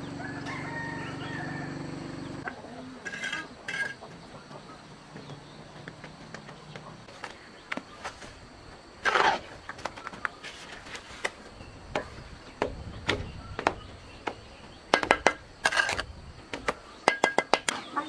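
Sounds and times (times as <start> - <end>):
scraping rustle: 9.0 - 11.5.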